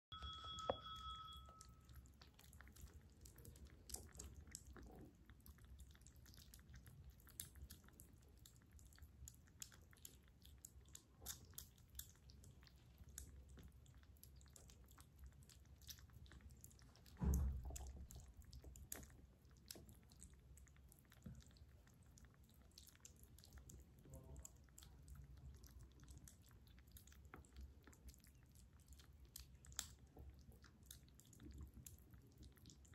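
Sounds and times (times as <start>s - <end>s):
kittens chewing and smacking: 0.1s - 32.9s
low thump: 17.2s - 17.8s.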